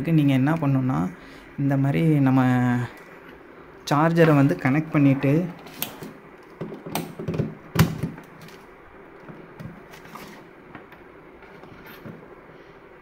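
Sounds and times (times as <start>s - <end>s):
cable and plastic handling: 5.4s - 12.2s.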